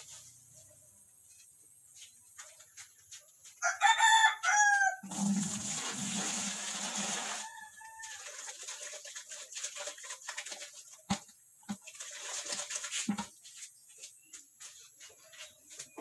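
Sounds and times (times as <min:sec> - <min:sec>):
water splashing into plastic bucket: 0:05.0 - 0:13.7.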